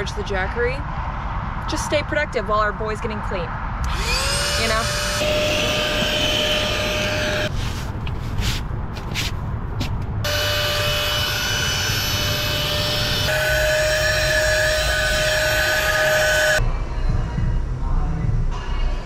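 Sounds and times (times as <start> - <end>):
handheld vacuum cleaner whine: 3.8 - 7.5, 10.3 - 16.6
hand brushing across seat: 7.5 - 10.0.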